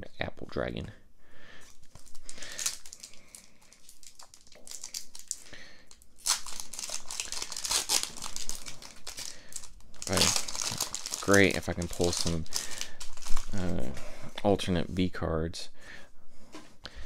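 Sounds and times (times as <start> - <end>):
foil wrapper crinkling: 1.7 - 13.7
foil pack tearing open: 1.9 - 5.4, 6.2 - 13.6.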